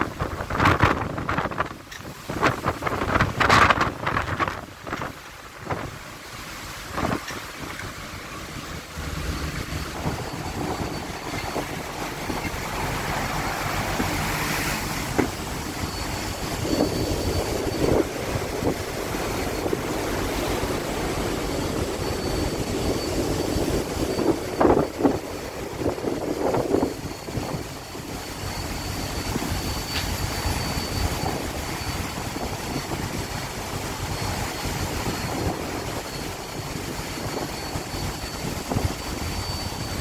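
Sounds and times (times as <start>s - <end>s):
rough seas breaking and rushing: 0.0s - 40.0s
wind buffeting microphone: 0.0s - 40.0s
low rumble: 2.4s - 34.2s.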